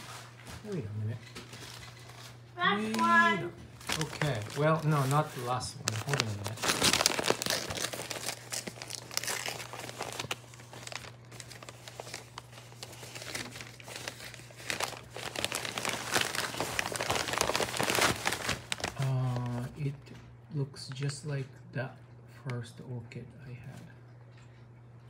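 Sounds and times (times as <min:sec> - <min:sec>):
paper rustling and crinkling: 0:00.0 - 0:19.8.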